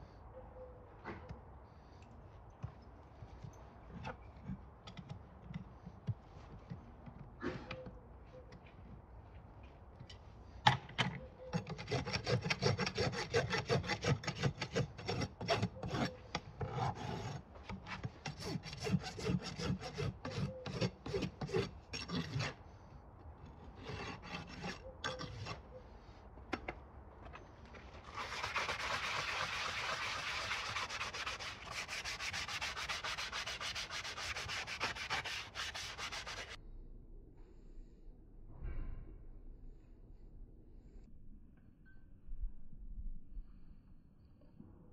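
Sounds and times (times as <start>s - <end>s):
rasp scraping hoof: 11.5s - 22.6s, 23.6s - 25.8s, 27.8s - 36.6s.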